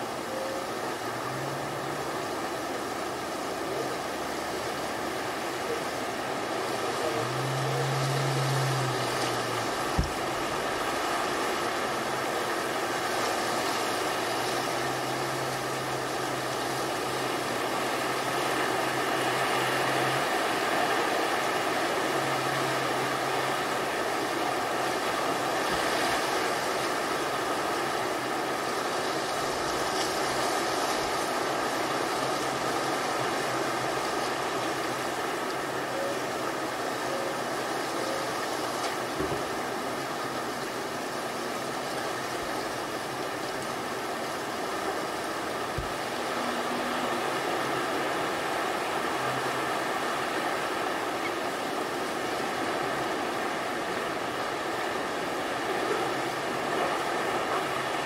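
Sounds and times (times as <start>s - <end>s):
low motor drone: 0.0s - 36.3s
ocean surf: 0.0s - 58.0s.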